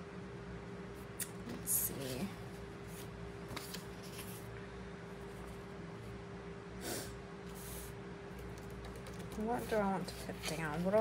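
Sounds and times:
steady faint hum: 0.0 - 11.0
paper sticker sheet rustling: 9.3 - 11.0.

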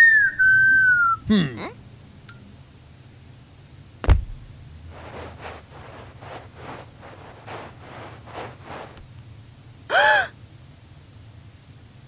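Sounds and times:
heavy thump: 4.0 - 9.0
soft rustling swishes: 4.0 - 9.1.

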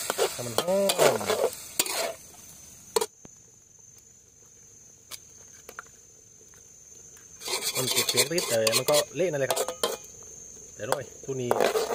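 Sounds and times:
metal spatula scraping wok: 0.0 - 2.3, 7.4 - 10.1, 11.4 - 11.9
frying sizzle: 0.0 - 3.2, 5.9 - 11.9.

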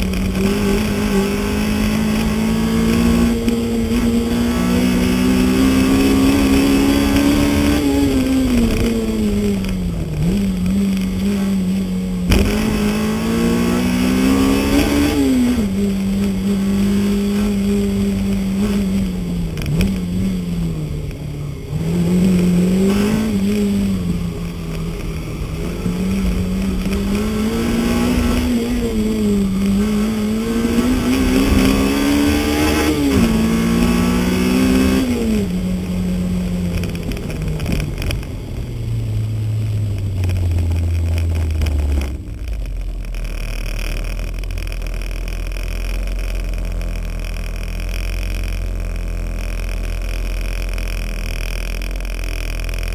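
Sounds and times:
car engine revving hard: 0.0 - 21.0, 21.6 - 38.2
low engine rumble: 35.2 - 52.9.

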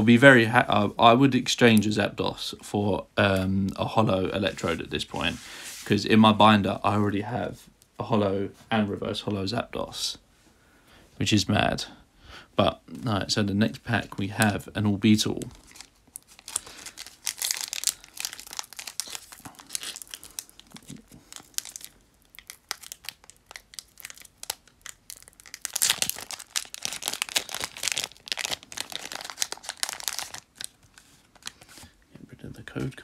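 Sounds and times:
foil wrapper crinkling and tearing: 15.2 - 32.0.

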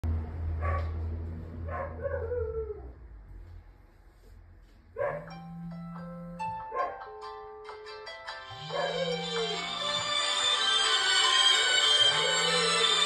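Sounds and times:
dog barking: 0.6 - 1.0, 1.6 - 2.5, 5.0 - 5.4, 6.7 - 7.1, 8.7 - 9.6
dog whining: 8.5 - 13.0.

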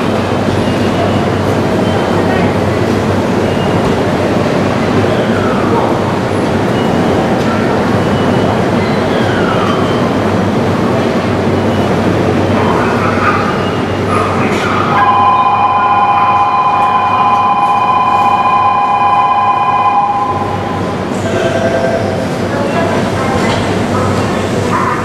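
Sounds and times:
electric train running on rails: 0.0 - 25.0
high two-note ringing tone: 15.0 - 20.9.

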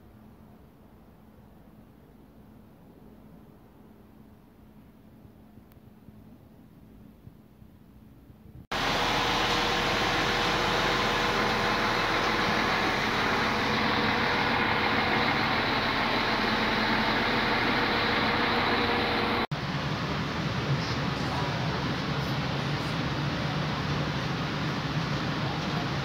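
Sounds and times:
low hum: 8.6 - 21.0
train machine rush: 8.7 - 26.0.

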